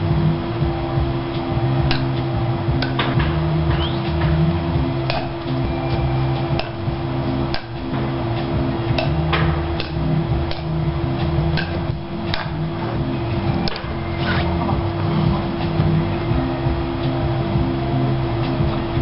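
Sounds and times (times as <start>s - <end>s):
low hum: 0.0s - 19.0s
wooden paddles hitting ball: 5.1s - 5.6s, 7.5s - 12.8s.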